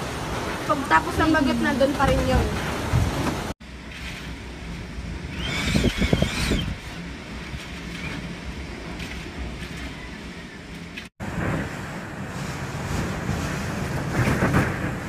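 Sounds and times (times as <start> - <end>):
wind buffeting microphone: 4.8 - 15.0
high wavering wind whistle: 5.3 - 6.8.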